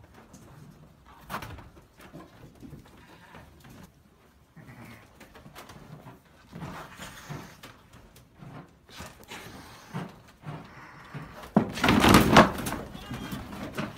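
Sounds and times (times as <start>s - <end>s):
animal sniffing and breathing: 2.4s - 11.6s.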